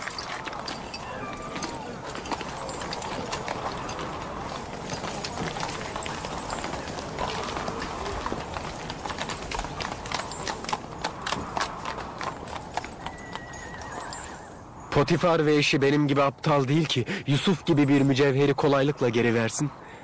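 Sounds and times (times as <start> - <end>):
horse hooves on stone: 0.0 - 14.6.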